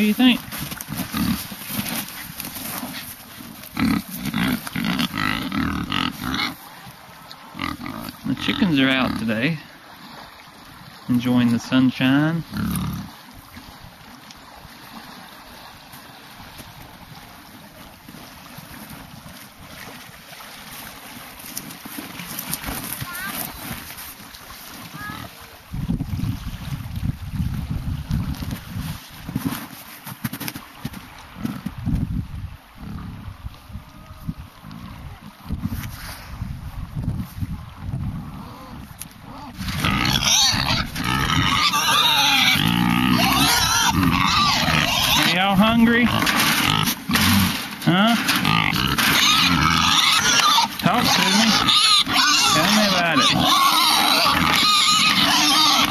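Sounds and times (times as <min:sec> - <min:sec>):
creek flowing: 0:00.0 - 0:28.1, 0:37.5 - 0:55.9
pigs squealing: 0:03.8 - 0:06.6, 0:12.5 - 0:13.1, 0:38.3 - 0:55.9
wind buffeting microphone: 0:25.0 - 0:29.6, 0:31.3 - 0:41.7.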